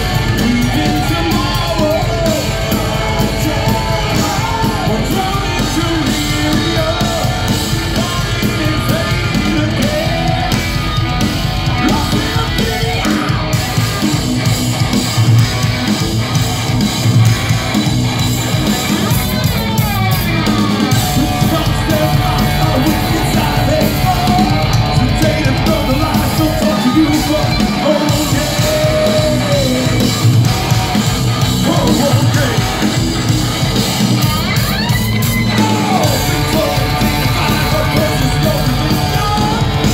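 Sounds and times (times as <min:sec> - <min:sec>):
person singing: 0:00.0 - 0:10.7, 0:11.7 - 0:14.0, 0:18.7 - 0:30.5, 0:35.4 - 0:39.9
live metal band playing: 0:00.0 - 0:39.9.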